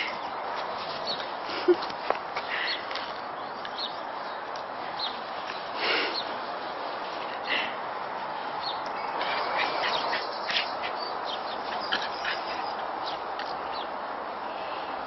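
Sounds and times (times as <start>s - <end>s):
puppies yipping: 9.0s - 12.9s.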